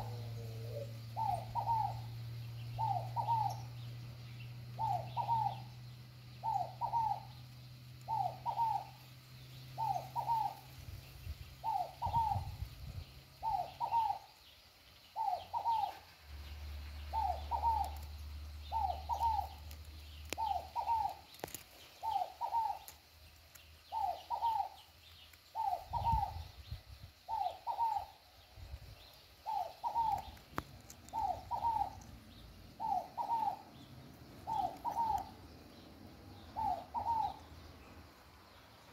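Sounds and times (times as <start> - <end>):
dove cooing: 0.0 - 3.8, 4.8 - 5.7, 6.4 - 7.4, 8.1 - 9.0, 9.8 - 10.7, 11.6 - 12.6, 13.4 - 14.4, 15.2 - 16.1, 17.0 - 22.9, 23.9 - 24.8, 25.5 - 26.5, 27.3 - 28.2, 29.4 - 35.8, 36.4 - 37.5.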